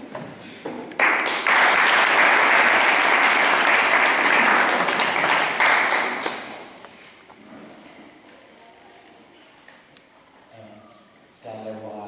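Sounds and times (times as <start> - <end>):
audience clapping: 0.9 - 6.8.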